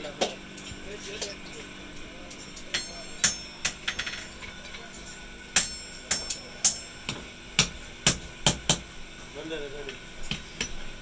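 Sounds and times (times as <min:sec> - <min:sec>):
hammer striking steel on anvil: 0:02.4 - 0:04.4, 0:05.5 - 0:08.9.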